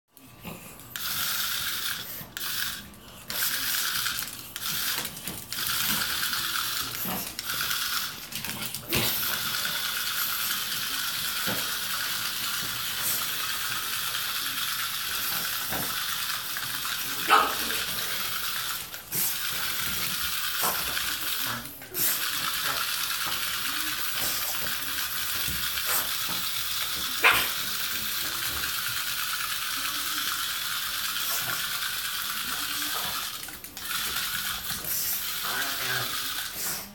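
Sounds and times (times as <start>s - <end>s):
toy motor and gears whirring: 0.2s - 36.9s
dog barking: 17.2s - 17.8s, 27.2s - 27.6s.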